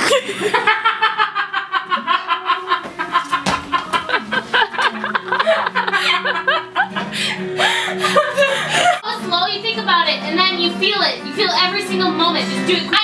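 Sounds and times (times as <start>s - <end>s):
young women laughing: 0.0s - 9.0s.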